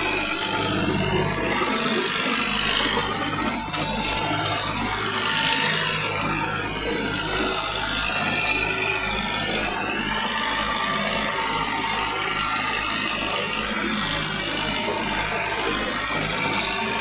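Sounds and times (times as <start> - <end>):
tractor engine running: 0.0 - 17.0.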